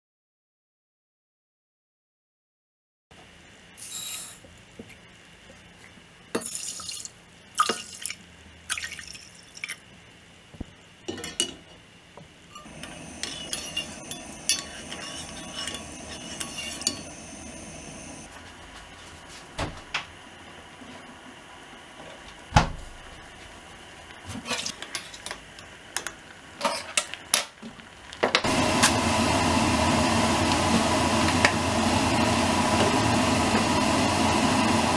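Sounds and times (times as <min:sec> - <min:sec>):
rice and water boiling: 0:04.6 - 0:34.9
rice and water pouring: 0:06.4 - 0:09.8.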